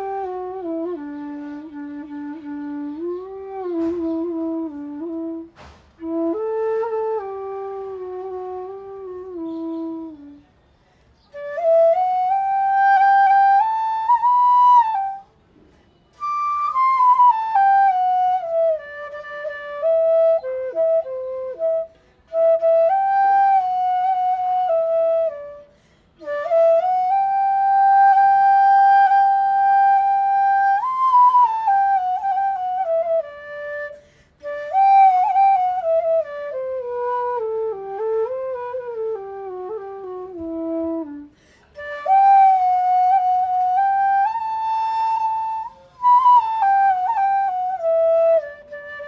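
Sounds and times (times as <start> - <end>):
slow solo flute melody: 0.0 - 49.0.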